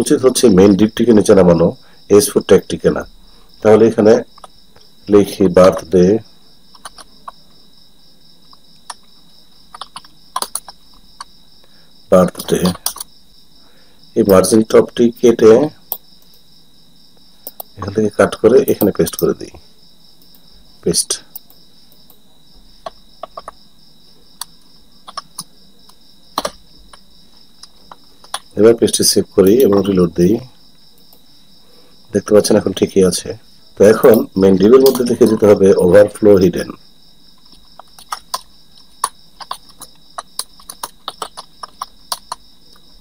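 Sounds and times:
faint high whine: 0:00.0 - 0:43.0
mouse and keyboard clicks: 0:06.7 - 0:07.4, 0:09.7 - 0:11.3, 0:24.4 - 0:25.5, 0:37.4 - 0:42.4.

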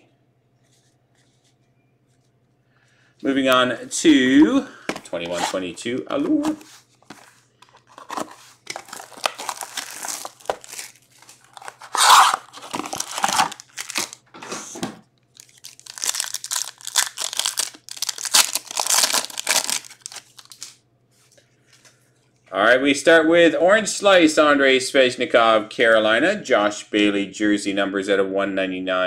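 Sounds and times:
packs crinkling and rustling: 0:06.4 - 0:14.4, 0:15.3 - 0:20.8
wrapper tearing open: 0:07.8 - 0:14.2, 0:15.4 - 0:20.8.

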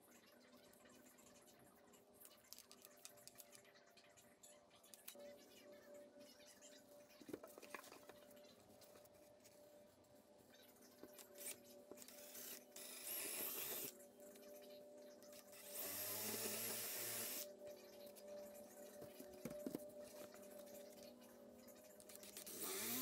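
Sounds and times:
cordless drill boring into wood: 0:12.2 - 0:13.9, 0:15.6 - 0:17.5, 0:22.5 - 0:23.0.

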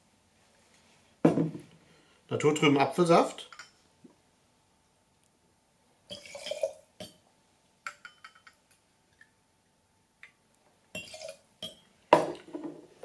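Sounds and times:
glass clinking on metal: 0:03.5 - 0:03.8, 0:07.9 - 0:08.6.

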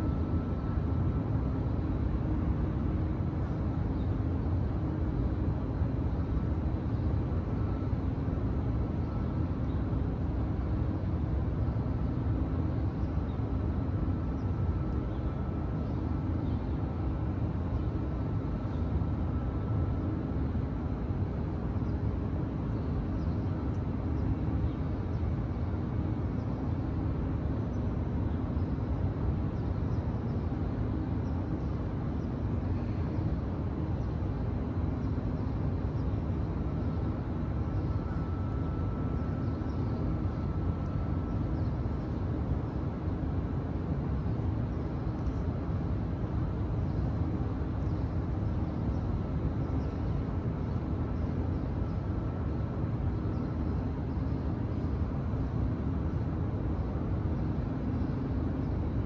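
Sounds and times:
faint hum: 0:00.0 - 0:59.0
low city rumble: 0:00.0 - 0:59.0.

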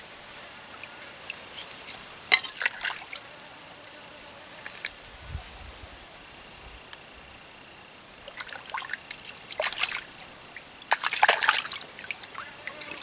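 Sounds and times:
stream water trickling: 0:00.0 - 0:03.5, 0:07.7 - 0:13.0
water splashing: 0:00.7 - 0:03.3, 0:08.2 - 0:13.0.

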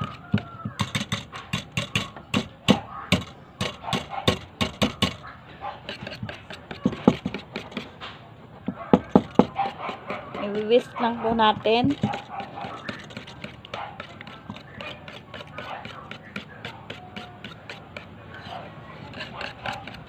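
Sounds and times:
whisk clicking against metal bowl: 0:09.6 - 0:18.1.

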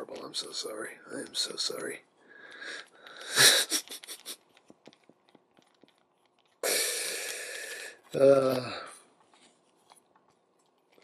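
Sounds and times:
steady hiss: 0:06.6 - 0:08.9.

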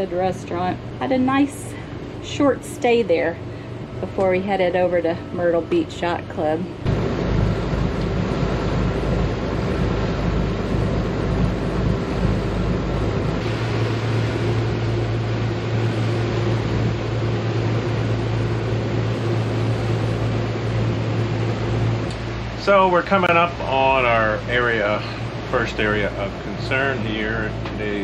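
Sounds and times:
boat engines droning: 0:00.0 - 0:28.0
strong low hum: 0:00.0 - 0:28.0
wind and water rushing: 0:06.9 - 0:17.6.

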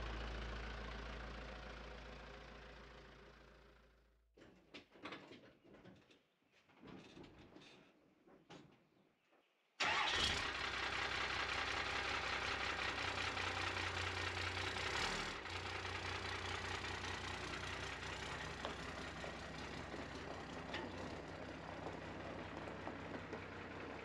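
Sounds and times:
pickup truck engine running: 0:09.9 - 0:24.0.

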